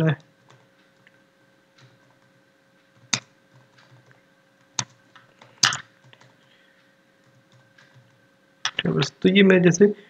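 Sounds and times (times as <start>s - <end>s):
typing on computer keyboard: 3.0s - 6.4s.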